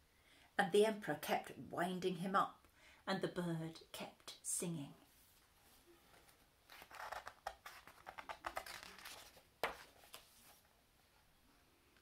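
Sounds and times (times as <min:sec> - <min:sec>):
paper pages rustling: 0:06.1 - 0:10.7.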